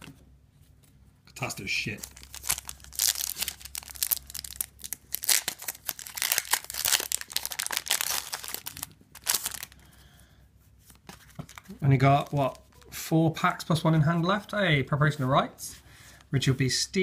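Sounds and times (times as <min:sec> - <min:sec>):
foil wrapper crinkling and tearing: 0:01.9 - 0:09.8, 0:11.4 - 0:12.9.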